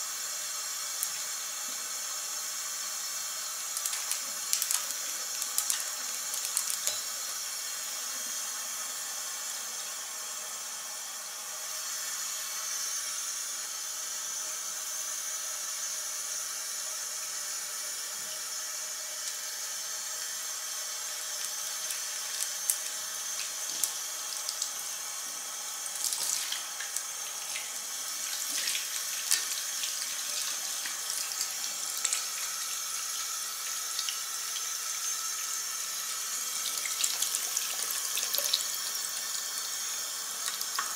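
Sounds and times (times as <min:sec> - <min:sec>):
tap water running into basin: 0:00.2 - 0:07.8, 0:18.2 - 0:40.9
hands rinsing under water: 0:25.9 - 0:32.6.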